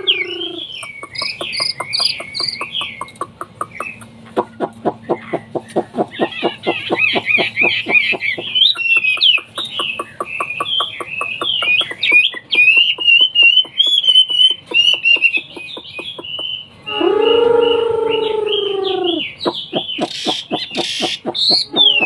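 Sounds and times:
bird singing whistled phrases: 10.4s - 22.0s.

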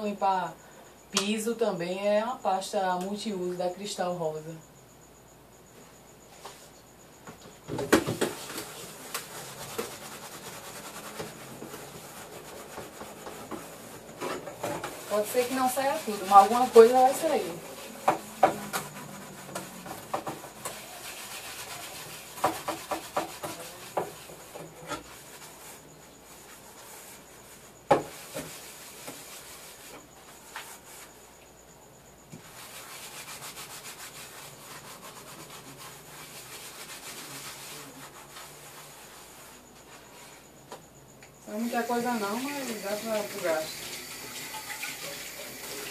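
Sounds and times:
sponge scrubbing a pan: 8.1s - 31.2s, 32.3s - 40.4s, 41.5s - 45.9s
pan knocking: 16.3s - 21.0s.

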